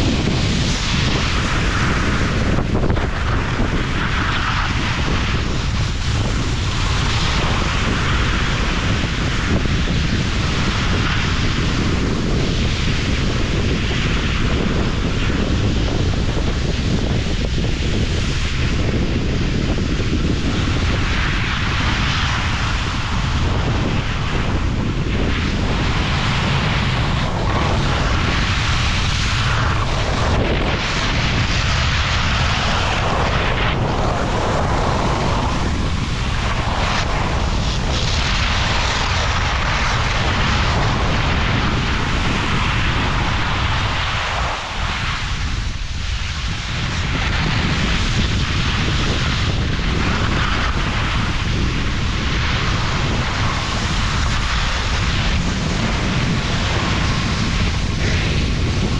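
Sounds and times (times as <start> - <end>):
wind buffeting microphone: 0.0 - 58.9
skis hissing over snow: 20.2 - 58.9.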